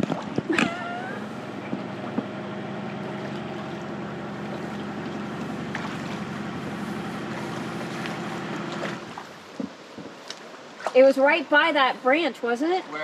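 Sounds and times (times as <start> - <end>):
electric motor humming: 0.7 - 9.4.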